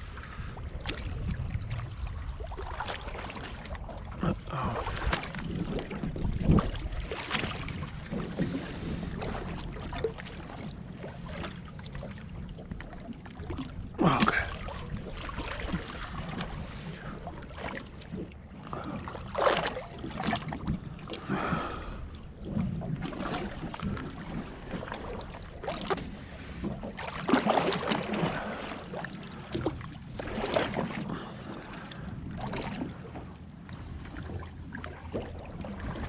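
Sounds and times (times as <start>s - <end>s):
wind buffeting microphone: 0.0s - 11.6s
water lapping against boat hull: 0.0s - 36.0s.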